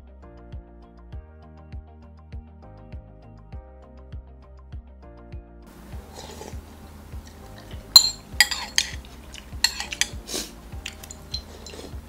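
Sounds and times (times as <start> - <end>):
background music with steady beat: 0.0 - 12.0
spoon clinking against glass bowl: 7.3 - 12.0.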